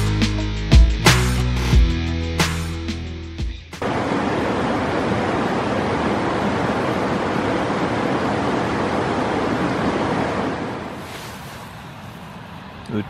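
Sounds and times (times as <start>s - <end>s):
mountain creek rushing: 3.8s - 12.5s.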